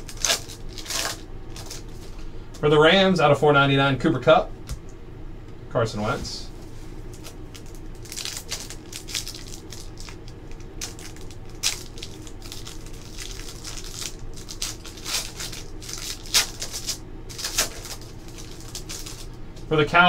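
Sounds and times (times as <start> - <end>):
foil wrapper crinkling and tearing: 0.0 - 2.2, 7.1 - 19.4.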